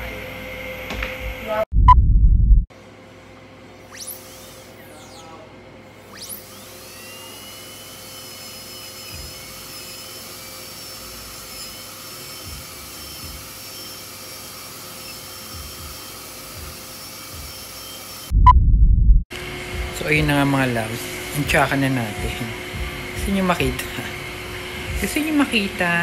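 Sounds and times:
dental drill whining: 6.0s - 18.3s, 19.7s - 26.0s.

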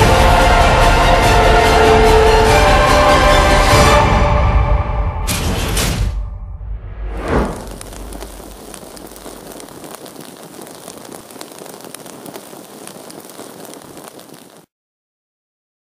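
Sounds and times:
torch flames crackling: 7.1s - 14.7s.

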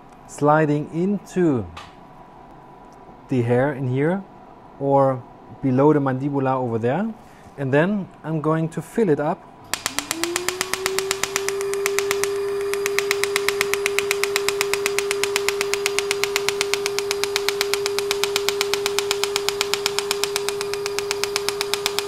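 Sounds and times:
steady mid-pitched hum: 9.4s - 22.0s
laser firing in rapid pops: 9.8s - 22.0s.

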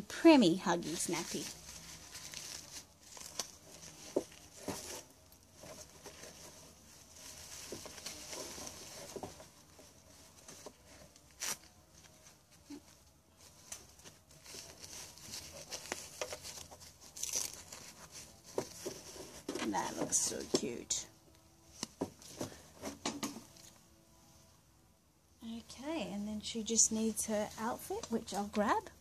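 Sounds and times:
plastic nappy crinkling: 0.8s - 20.9s.

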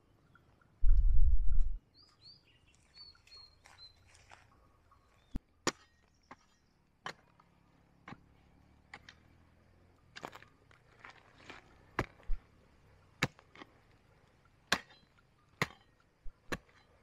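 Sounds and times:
small birds chirping: 0.0s - 8.8s, 11.7s - 17.0s
hoe chopping dry earth: 5.4s - 17.0s.

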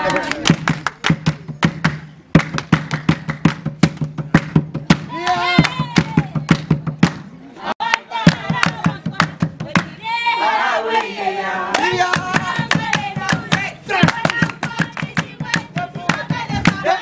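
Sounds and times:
hand clapping rhythm: 0.0s - 10.0s, 10.9s - 17.0s
group singing: 7.6s - 17.0s.

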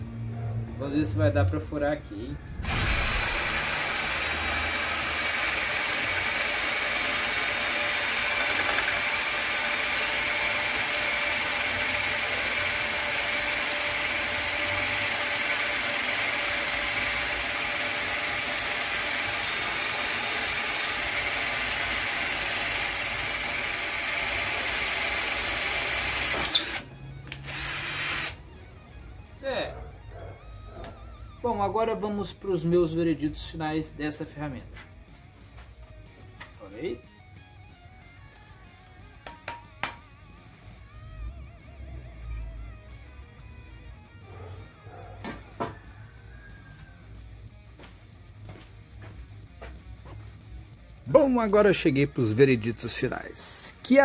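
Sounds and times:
cordless drill boring through tile: 2.6s - 28.4s.

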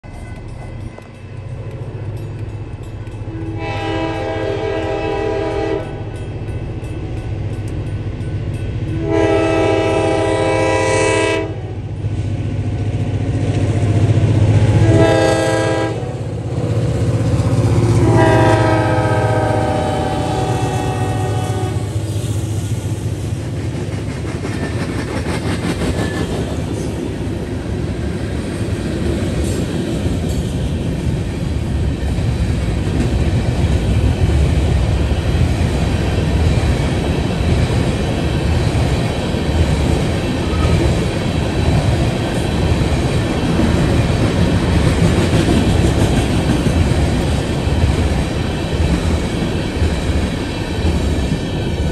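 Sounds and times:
diesel locomotive engine rumble: 0.0s - 51.9s
locomotive air horn blasts: 3.4s - 6.1s, 9.0s - 11.8s, 14.7s - 16.3s, 18.0s - 22.0s.

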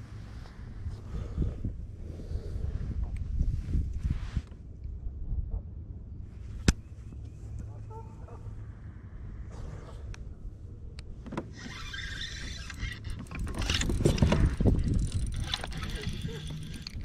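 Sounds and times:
fishing reel whirring: 11.5s - 17.0s.

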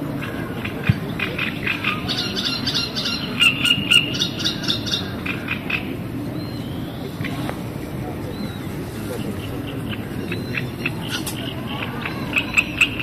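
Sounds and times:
bird calls: 0.0s - 13.0s
frogs croaking: 0.0s - 13.0s
low steady background rumble: 0.0s - 13.0s.

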